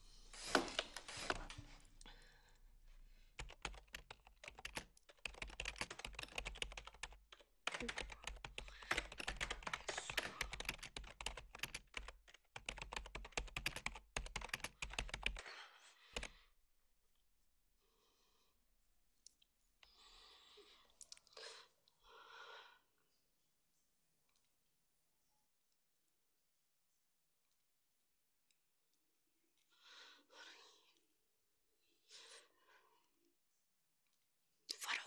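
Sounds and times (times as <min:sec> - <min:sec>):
rapid typing on computer keyboard: 0:03.4 - 0:15.5, 0:16.2 - 0:16.4.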